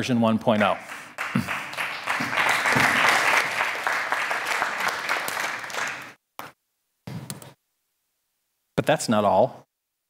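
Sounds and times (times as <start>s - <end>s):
audience applauding: 0.6s - 6.2s.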